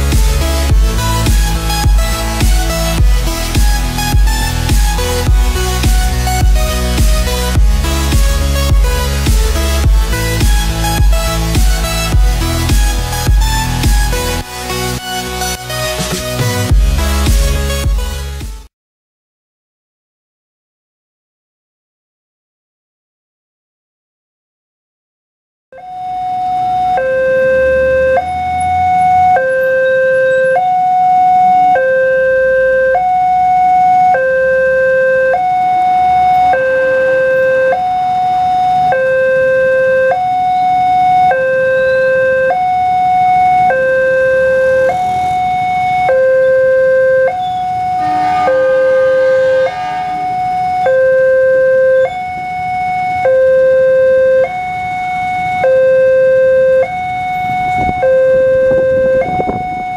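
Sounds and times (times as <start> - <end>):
two-tone level crossing alarm: 0.0 - 15.8, 25.8 - 59.9
horn-like tone: 25.8 - 59.9.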